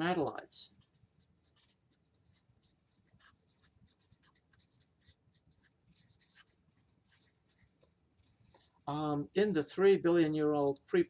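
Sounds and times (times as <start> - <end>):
marker scratching on paper: 0.4 - 8.3.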